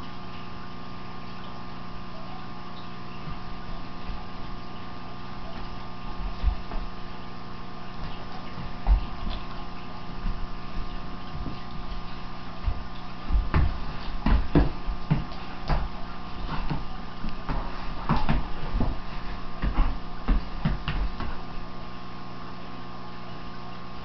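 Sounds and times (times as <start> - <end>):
electrical hum: 0.0 - 24.0
dogs play-wrestling thumps and scuffles: 8.0 - 21.4.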